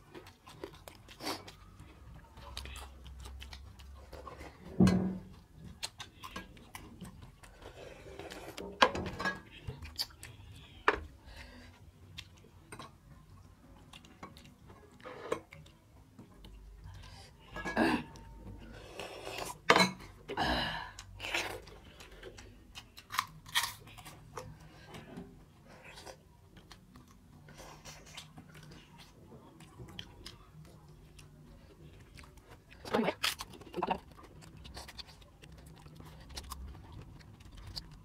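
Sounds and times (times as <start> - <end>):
wet chewing and lip smacks: 0.0 - 4.6, 9.6 - 10.8, 25.8 - 38.0.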